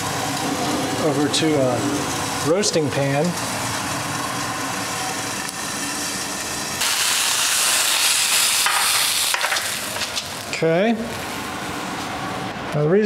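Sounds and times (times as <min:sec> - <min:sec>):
steak sizzling in a skillet: 0:03.4 - 0:10.6.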